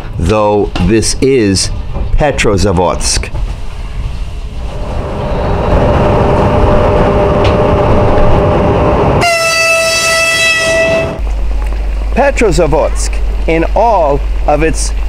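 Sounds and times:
low hum: 0:00.0 - 0:15.0
train rumbling on rails: 0:00.0 - 0:15.0
train horn blast: 0:09.1 - 0:11.2.

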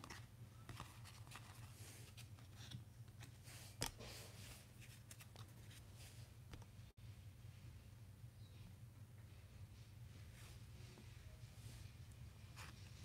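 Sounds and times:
cards being flipped: 0:04.8 - 0:05.6.

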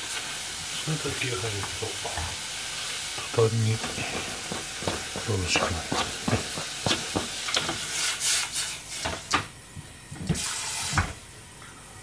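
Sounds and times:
hissing sloshing liquid: 0:00.0 - 0:09.0
pot knocking on hob: 0:03.8 - 0:07.8
cutting board scraping a pot: 0:03.8 - 0:09.2.

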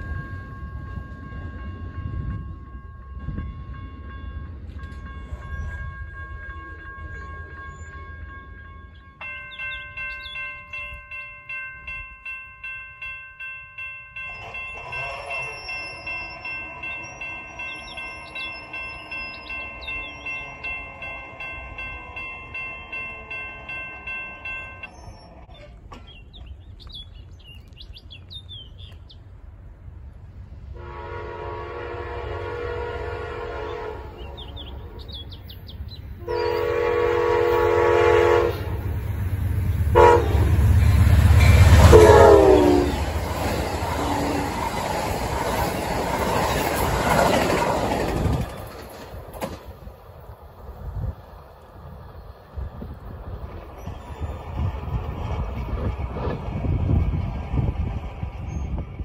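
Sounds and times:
railroad crossing bell: 0:00.0 - 0:26.0, 0:30.8 - 0:59.0
train rumble: 0:00.0 - 0:59.0
birds chirping: 0:06.8 - 0:11.4, 0:14.2 - 0:29.3, 0:33.6 - 0:36.8, 0:53.4 - 0:56.6
locomotive horn blasts: 0:30.8 - 0:35.1, 0:36.2 - 0:38.9, 0:39.9 - 0:40.7, 0:41.4 - 0:43.2.

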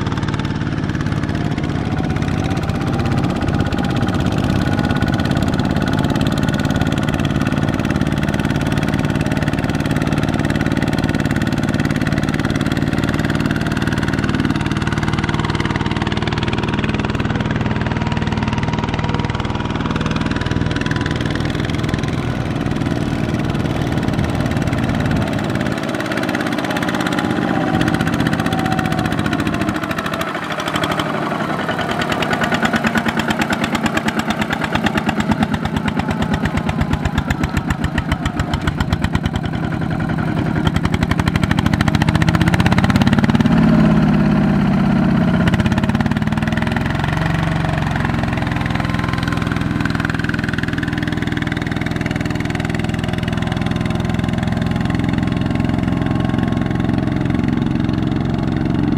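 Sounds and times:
diesel engine running under load: 0:00.0 - 0:58.9.

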